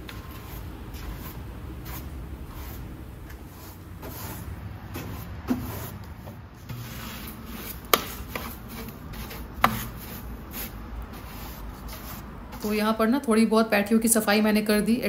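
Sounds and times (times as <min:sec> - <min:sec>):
broom sweeping snow: 0:00.2 - 0:06.0, 0:06.6 - 0:12.8.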